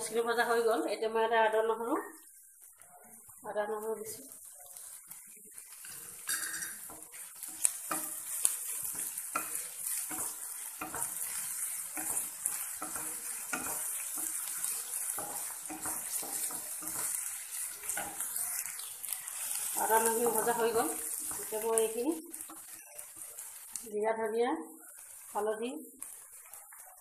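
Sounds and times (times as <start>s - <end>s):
onions sizzling in oil: 0.0s - 27.0s
spatula stirring and scraping: 2.0s - 24.0s, 24.8s - 27.0s
spatula knocking on pan: 6.2s - 18.4s.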